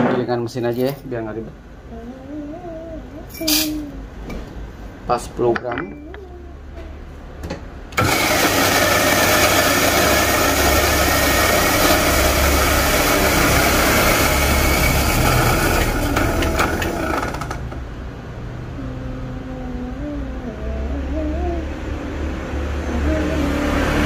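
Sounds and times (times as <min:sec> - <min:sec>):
vehicle engine with wavering pitch: 0:01.8 - 0:04.9, 0:05.8 - 0:08.0, 0:09.1 - 0:24.0
electric coffee grinder whirring: 0:08.0 - 0:17.7.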